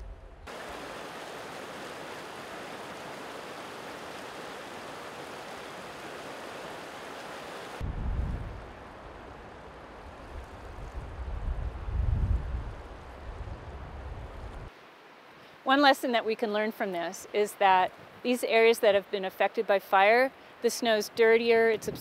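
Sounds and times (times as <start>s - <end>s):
creek rushing over rocks: 0.5s - 7.8s
wind buffeting microphone: 7.8s - 14.7s, 21.7s - 22.0s.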